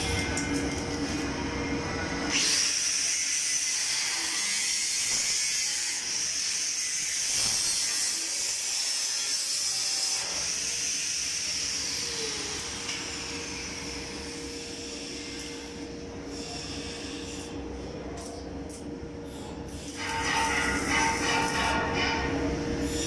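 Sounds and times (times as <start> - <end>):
angle grinder grinding metal: 19.8 - 23.0.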